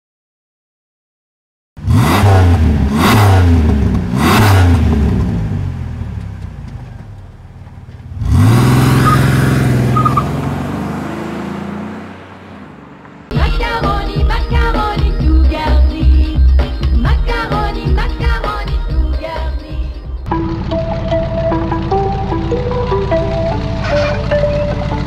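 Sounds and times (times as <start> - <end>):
car engine revving: 1.8 - 13.4, 19.8 - 25.0.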